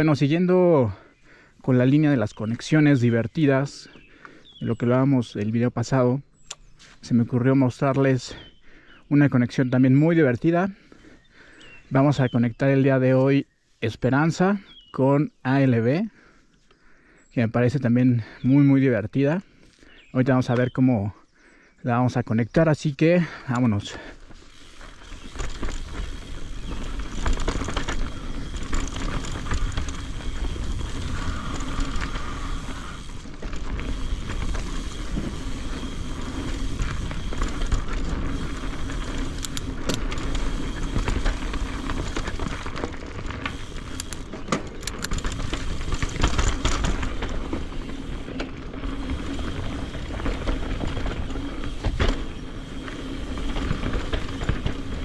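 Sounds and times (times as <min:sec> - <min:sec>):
tyres rumbling over rocks: 0:23.4 - 0:55.0.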